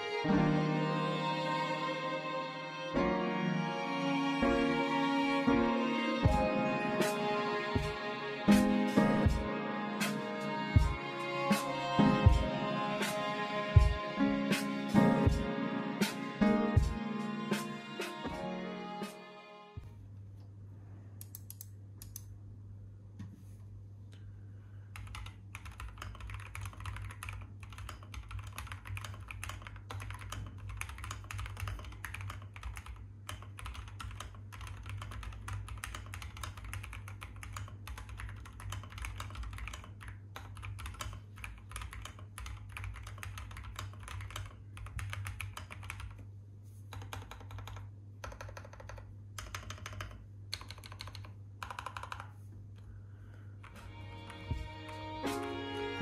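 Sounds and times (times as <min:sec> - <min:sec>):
mechanical keyboard typing: 0:25.0 - 0:46.2, 0:46.9 - 0:52.3.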